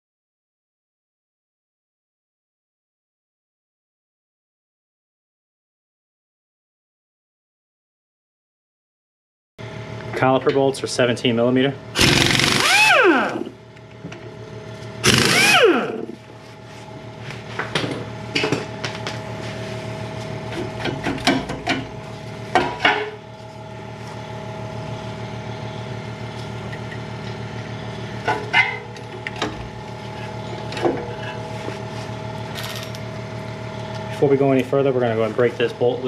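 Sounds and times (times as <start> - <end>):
steady hum: 9.6 - 36.0
power tool spinning out bolts: 12.0 - 13.5, 15.0 - 16.2.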